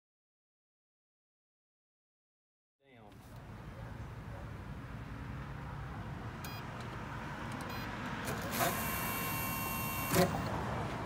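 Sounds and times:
electronic beeps: 6.4 - 6.7, 7.7 - 7.9.

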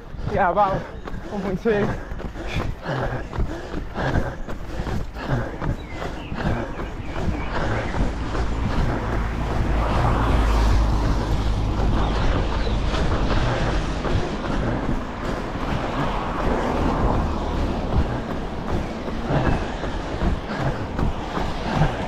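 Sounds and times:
wind rumble on microphone: 5.2 - 22.0.

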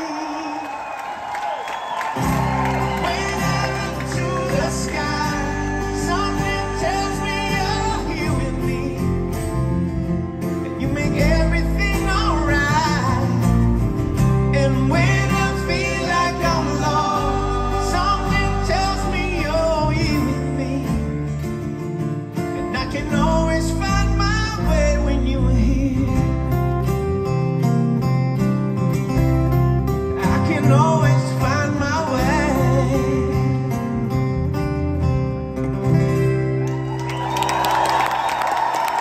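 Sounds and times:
man singing: 0.0 - 0.8, 2.9 - 9.5, 10.6 - 13.6, 14.4 - 21.4, 22.6 - 26.6, 30.2 - 34.0
strummed acoustic guitars: 2.0 - 39.0
electric bass: 2.2 - 37.0.

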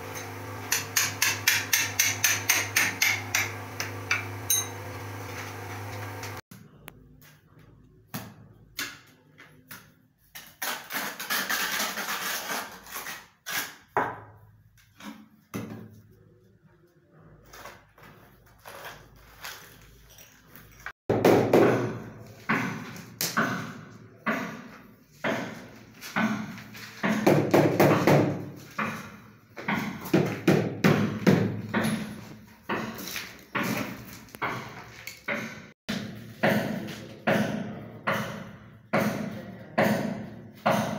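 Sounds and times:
motor hum: 0.0 - 6.4
trowel scraping adhesive on tile: 10.2 - 14.0, 17.4 - 20.7
knocks of tile and tools: 15.0 - 16.0, 21.1 - 40.9.

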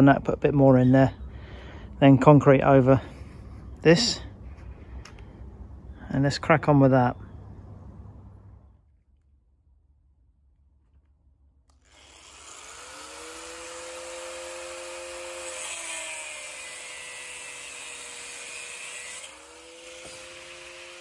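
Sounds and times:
electric power tool spinning: 11.7 - 21.0.

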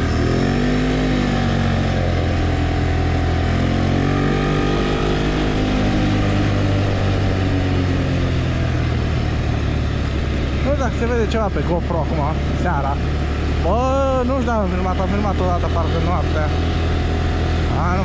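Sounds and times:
engine running: 0.0 - 18.0.

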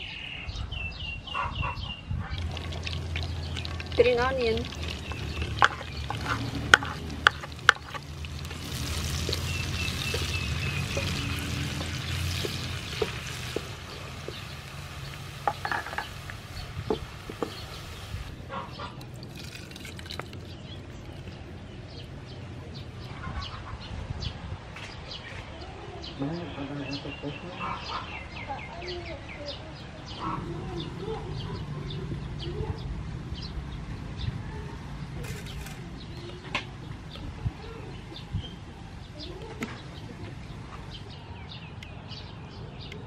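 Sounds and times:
onion sizzling in oil: 2.4 - 18.4.

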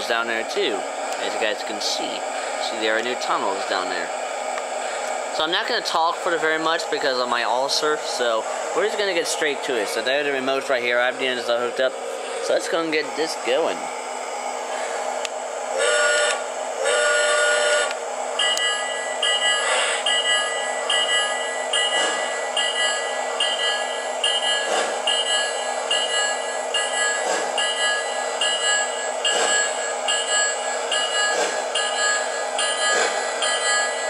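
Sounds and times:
steady rumble: 0.0 - 33.5
model train horn blasts: 15.8 - 28.1
bell ringing: 18.4 - 34.0.

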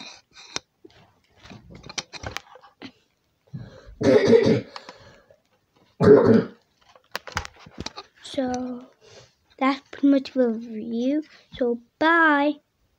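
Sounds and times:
person coughing: 4.0 - 4.8, 6.0 - 6.6.

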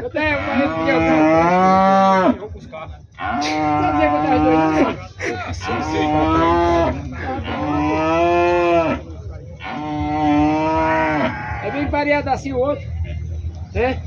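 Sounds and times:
cattle mooing: 0.3 - 2.4, 3.2 - 5.0, 5.6 - 12.0.

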